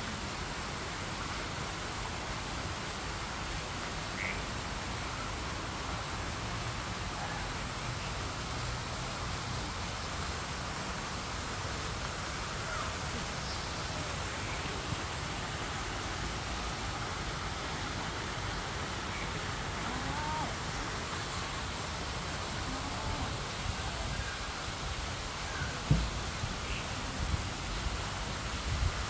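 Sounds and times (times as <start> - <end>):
constant hiss: 0.0 - 29.0.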